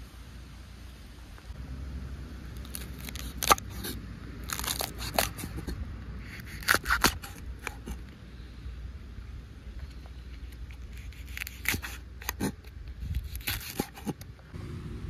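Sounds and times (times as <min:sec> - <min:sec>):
food snipping and crunching: 0:02.6 - 0:08.1, 0:10.4 - 0:14.3
low rumble: 0:14.4 - 0:15.0.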